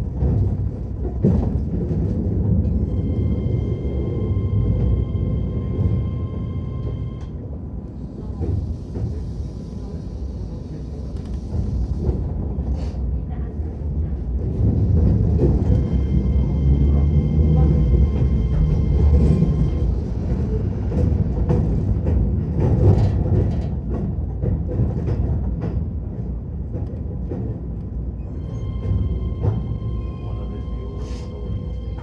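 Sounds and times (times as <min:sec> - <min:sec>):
clacks over rail joints: 0:00.0 - 0:02.9, 0:17.7 - 0:30.0
train wheels rumbling on rails: 0:00.0 - 0:32.0.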